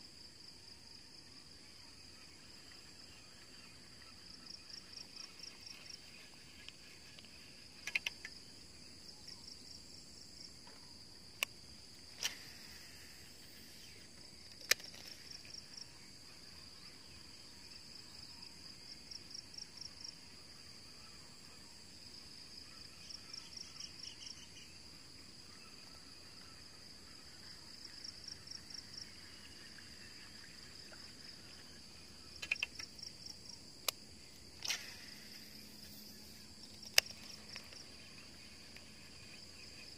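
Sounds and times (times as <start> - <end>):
insects chirping: 0.0 - 39.9
sharp clicks: 6.6 - 8.4, 14.4 - 15.1, 32.4 - 32.9, 34.6 - 35.2, 36.6 - 37.8.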